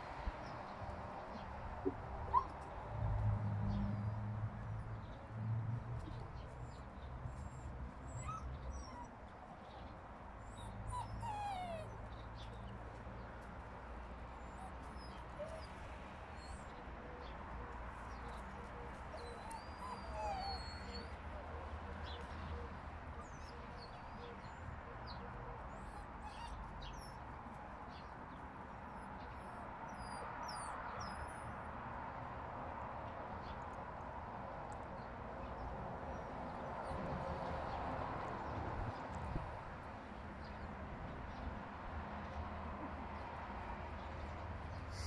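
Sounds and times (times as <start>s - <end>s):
puppies whining and yipping: 2.3s - 2.6s, 7.4s - 9.2s, 10.4s - 12.6s, 14.4s - 15.8s, 16.4s - 16.6s, 19.1s - 21.2s, 25.7s - 27.2s, 28.9s - 31.5s.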